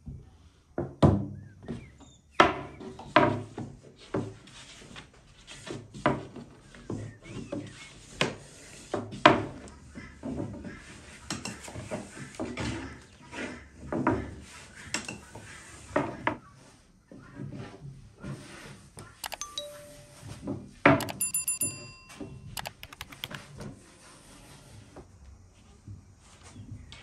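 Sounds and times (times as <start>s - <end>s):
bell-like ding: 19.2s - 20.4s, 21.0s - 23.3s
quick clicks: 19.2s - 20.4s, 21.0s - 23.4s.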